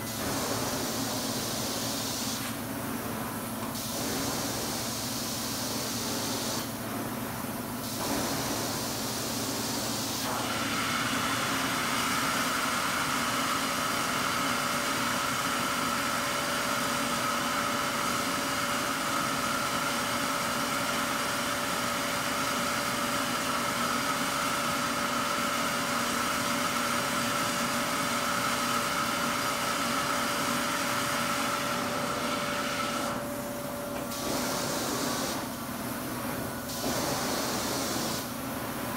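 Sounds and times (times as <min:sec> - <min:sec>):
carpet extraction vacuum whining: 0:28.2 - 0:38.9.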